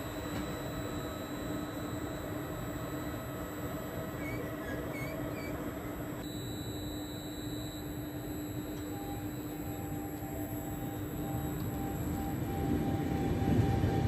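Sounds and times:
faint high squeaks: 0:04.2 - 0:05.8.

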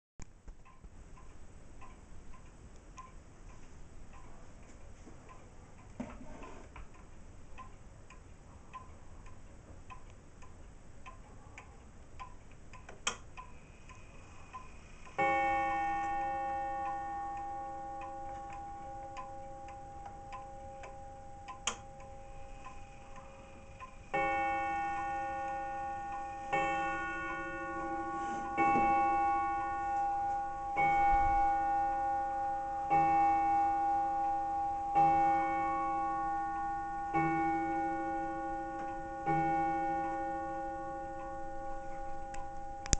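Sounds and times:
pendulum clock ticking: 0:00.3 - 0:42.9
clock gong striking: 0:15.2 - 0:42.9.

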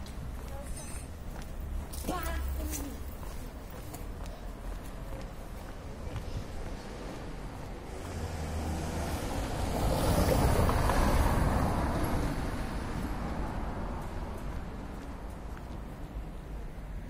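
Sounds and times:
car driving past: 0:07.9 - 0:14.4.

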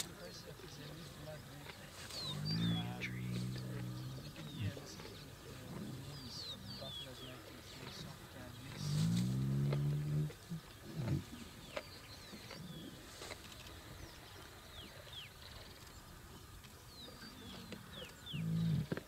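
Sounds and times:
small birds chirping: 0:00.0 - 0:19.0
lion growl: 0:02.2 - 0:06.5, 0:07.9 - 0:11.5, 0:17.4 - 0:19.0.

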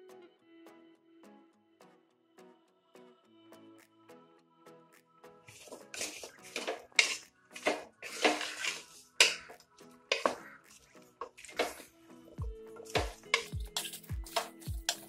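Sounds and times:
background music: 0:00.0 - 0:15.0
spatula scraping meat in a pot: 0:05.5 - 0:11.9, 0:12.8 - 0:15.0
low drum beat: 0:12.4 - 0:15.0.

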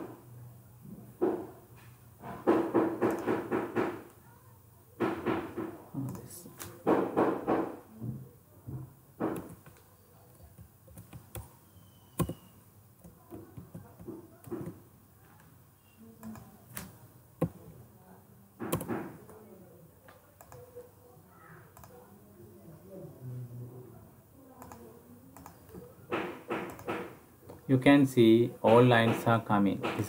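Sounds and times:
keyboard and mouse clicks: 0:03.0 - 0:03.5, 0:09.2 - 0:11.5, 0:12.2 - 0:12.4, 0:16.2 - 0:17.6, 0:18.6 - 0:19.4, 0:20.1 - 0:20.7, 0:21.7 - 0:22.0, 0:24.6 - 0:25.9, 0:26.5 - 0:27.6.

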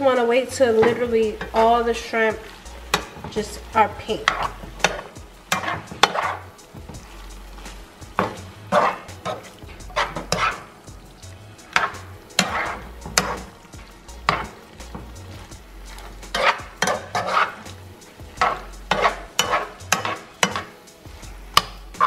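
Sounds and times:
light sizzle: 0:00.0 - 0:22.0
metal spoon scraping a skillet: 0:00.7 - 0:22.0.

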